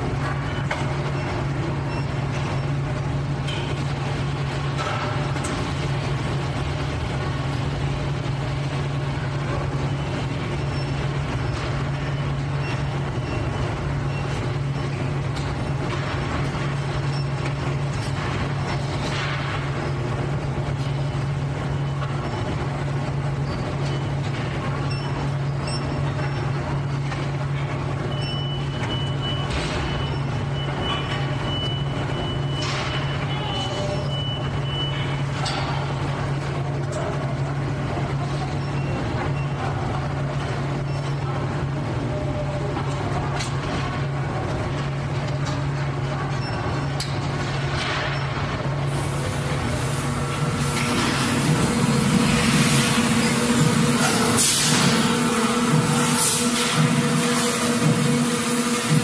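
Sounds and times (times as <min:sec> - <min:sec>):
industrial machinery hum: 0:00.0 - 0:59.0
steady high tone: 0:48.9 - 0:59.0.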